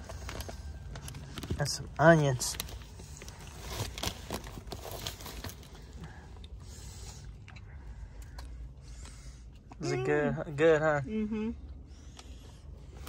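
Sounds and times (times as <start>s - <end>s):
paper wrapper rustling: 0.0s - 6.0s.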